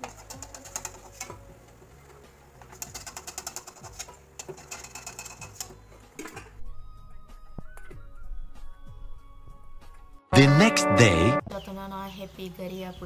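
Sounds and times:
hot oil crackling and popping: 0.0 - 6.5
music: 0.0 - 13.0.

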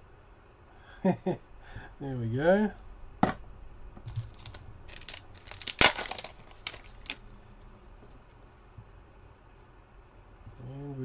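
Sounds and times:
foil pack tearing and crinkling: 4.2 - 7.2.

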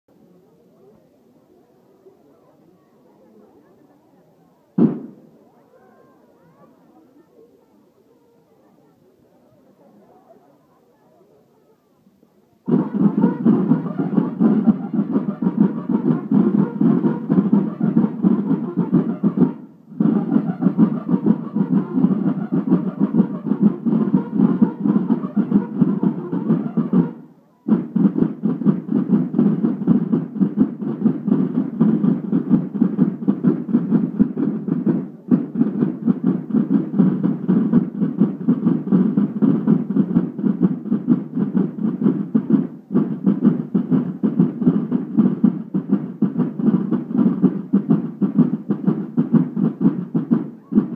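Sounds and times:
marching snare drums: 4.8 - 5.3, 12.6 - 50.9.

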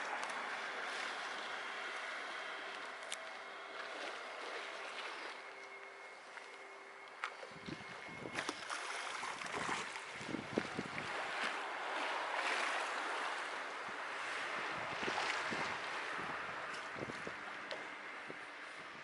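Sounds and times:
water splashing against seawall: 0.0 - 6.6, 7.2 - 18.0.

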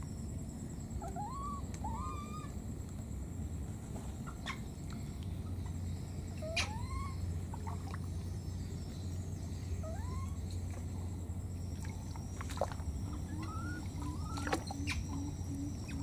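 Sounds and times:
low background rumble: 0.0 - 16.0
baby monkey squeaky cries: 1.1 - 2.5, 6.4 - 7.2, 9.8 - 10.4.

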